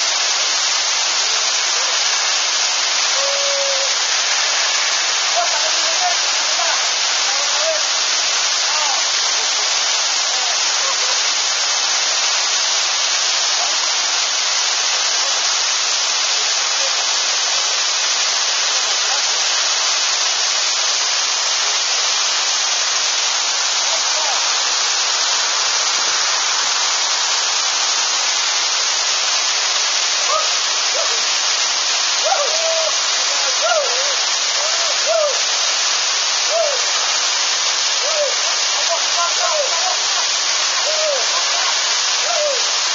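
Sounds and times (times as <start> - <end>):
waterfall rushing: 0.0 - 42.9
faint voices: 3.1 - 4.0, 32.2 - 35.5, 36.5 - 37.1, 38.0 - 42.8.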